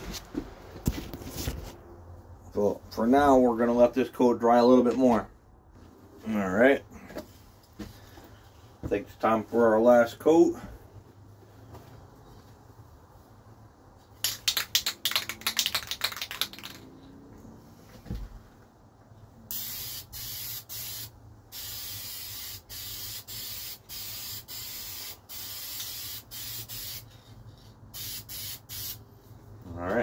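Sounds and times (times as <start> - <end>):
spray can ball rattling: 14.2 - 16.9, 19.5 - 29.0
spray paint hissing: 19.5 - 29.0.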